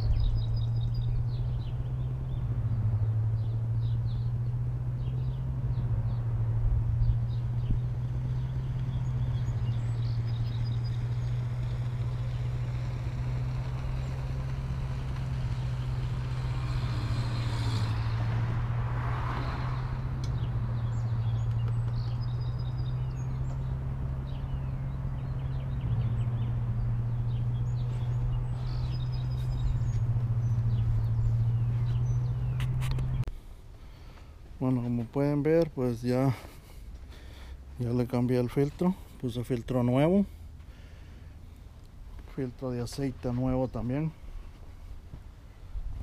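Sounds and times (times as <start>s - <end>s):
lawn mower engine humming: 0.3s - 33.4s.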